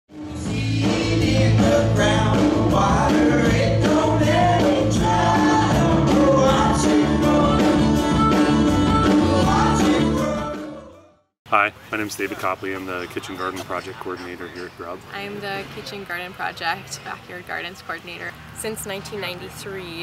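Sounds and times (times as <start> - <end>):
song with vocal over beat: 0.2 - 11.0.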